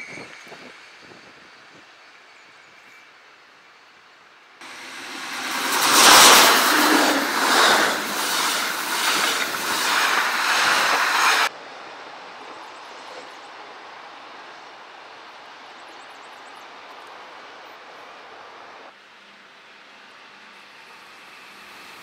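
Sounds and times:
train wheels on rails: 4.6 - 11.5
wheels clicking over rail joints: 4.6 - 11.5.

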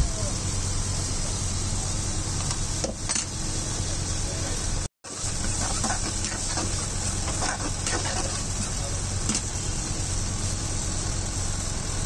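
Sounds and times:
sauce sizzling in a wok: 0.1 - 12.0
spoon scraping a wok: 5.2 - 9.5.

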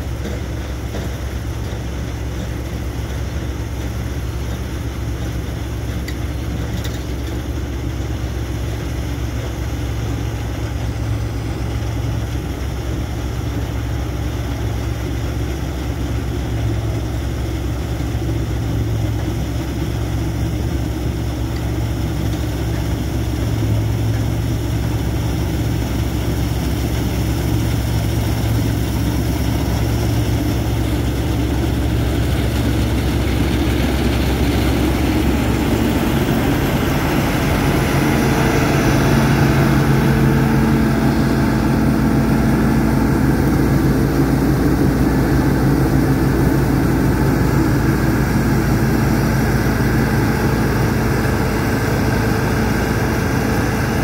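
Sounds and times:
diesel engine: 0.0 - 54.0
threshing machinery: 21.2 - 54.0.

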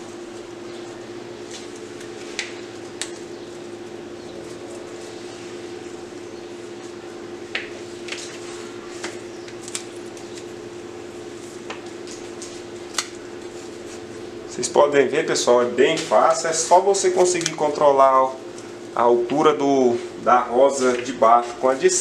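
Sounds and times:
mechanical hum: 0.0 - 22.0
stems clicking and rustling: 15.8 - 17.8.

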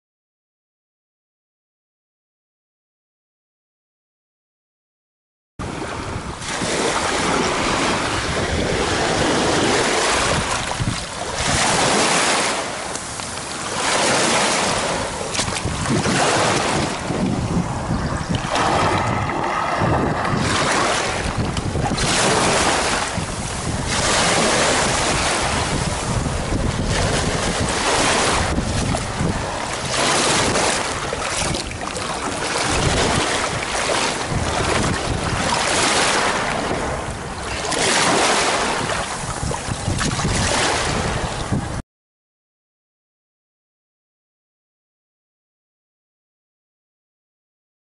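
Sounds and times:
wind buffeting microphone: 5.6 - 41.8
small waves on pebble beach: 5.8 - 17.1, 18.5 - 41.1.

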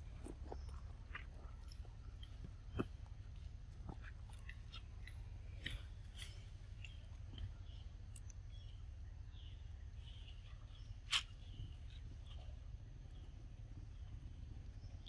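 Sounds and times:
monkey chewing fruit: 0.0 - 8.3.

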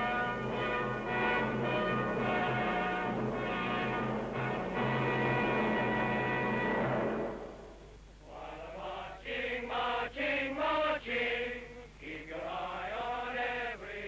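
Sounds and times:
group chanting in unison: 8.2 - 14.0.

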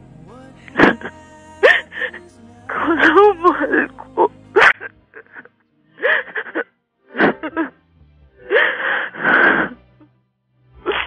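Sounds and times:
soft background music: 0.0 - 11.0
woman sobbing: 0.7 - 6.7.

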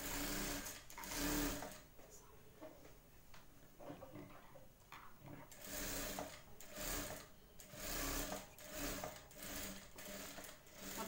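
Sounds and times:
sewing machine stitching: 0.0 - 1.8, 5.5 - 11.0.

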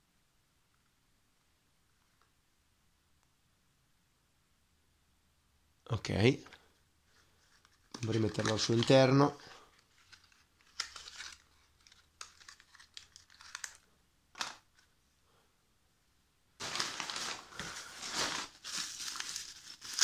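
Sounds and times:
packing paper crinkling: 7.4 - 14.9, 16.6 - 20.0.

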